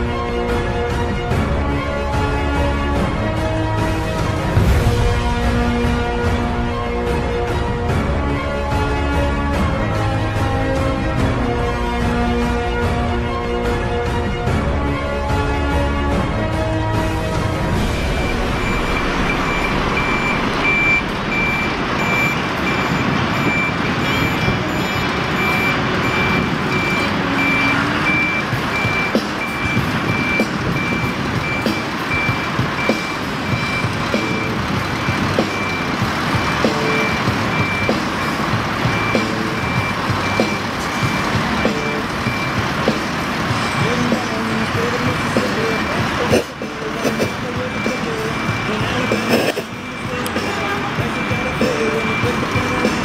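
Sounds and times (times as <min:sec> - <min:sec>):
diesel engine running: 0:00.0 - 0:53.0
truck reversing alarm beeping: 0:17.1 - 0:53.0.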